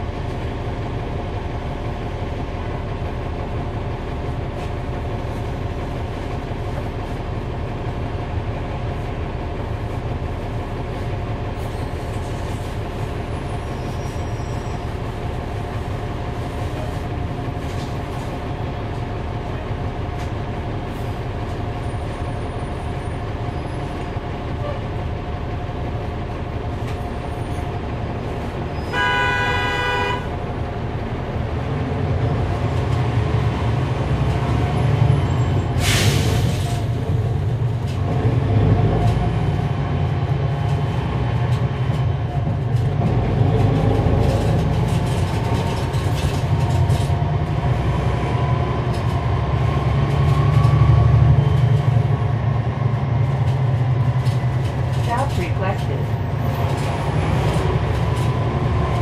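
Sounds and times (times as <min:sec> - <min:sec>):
bus diesel engine running: 0:00.0 - 0:59.0
road rumble: 0:00.0 - 0:59.0
bus horn: 0:28.8 - 0:30.4.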